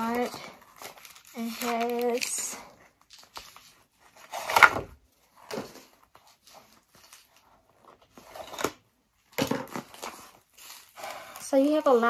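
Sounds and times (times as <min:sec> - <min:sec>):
paper packing rustling: 0:00.0 - 0:04.8.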